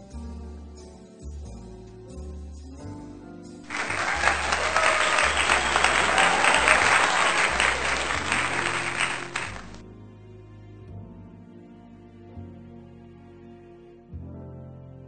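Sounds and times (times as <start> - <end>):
soft background music with bass: 0.0 - 3.6, 9.8 - 15.0
crowd applause: 3.7 - 9.8.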